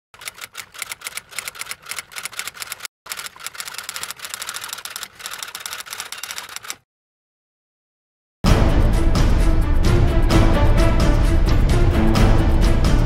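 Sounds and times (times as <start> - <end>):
typewriter keys clacking: 0.2 - 6.8.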